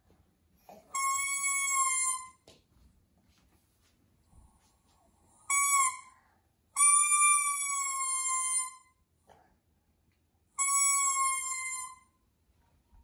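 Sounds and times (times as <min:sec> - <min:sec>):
toy trumpet toots: 0:00.9 - 0:02.4, 0:05.5 - 0:06.1, 0:06.8 - 0:08.8, 0:10.6 - 0:12.0.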